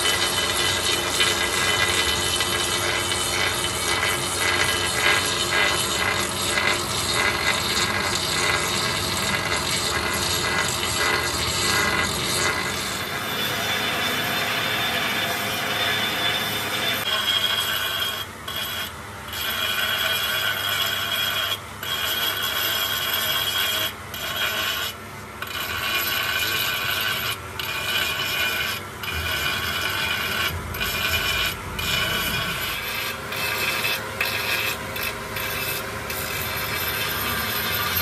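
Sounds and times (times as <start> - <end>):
grinding wheel on metal: 0.0 - 38.0.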